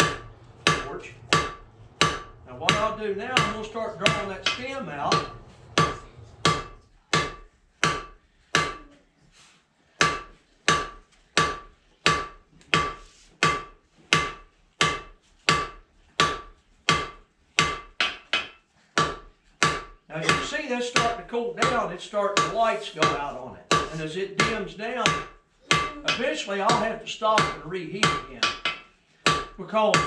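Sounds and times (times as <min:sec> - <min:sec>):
hammer striking steel on anvil: 0:00.0 - 0:08.9.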